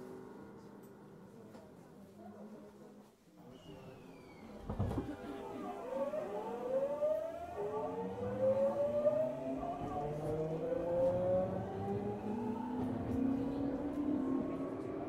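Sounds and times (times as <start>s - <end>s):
electric train inverter whine: 4.7s - 15.0s.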